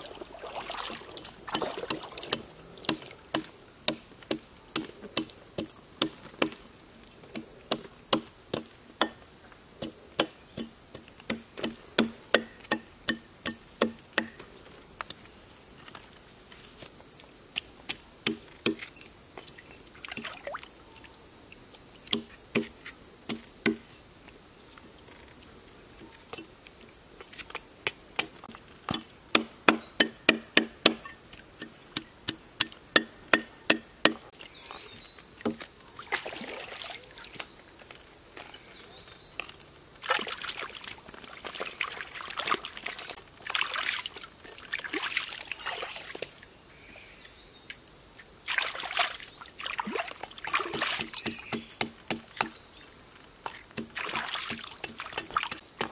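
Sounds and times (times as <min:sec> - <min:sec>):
splashing of shallow stream water: 0:00.0 - 0:03.1, 0:36.0 - 0:37.5, 0:40.0 - 0:46.4, 0:48.4 - 0:51.4, 0:53.4 - 0:55.9
high insect drone: 0:00.0 - 0:55.9.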